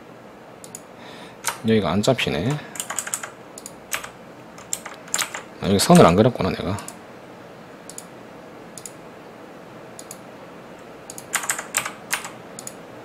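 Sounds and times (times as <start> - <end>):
keyboard keystrokes: 1.4 - 1.6, 2.8 - 6.1, 11.1 - 12.8
mouse clicks: 7.9 - 8.1, 8.8 - 9.0, 10.0 - 10.2, 12.6 - 12.8.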